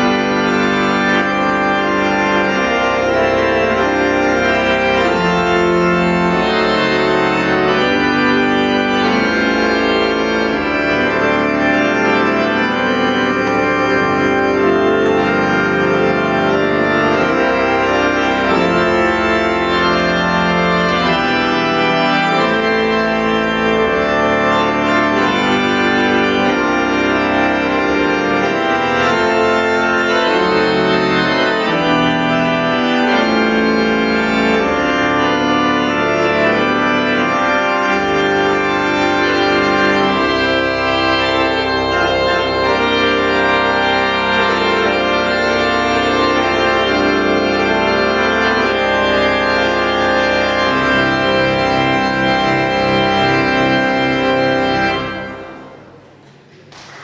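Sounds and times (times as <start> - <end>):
church organ playing chords: 0.0 - 57.0.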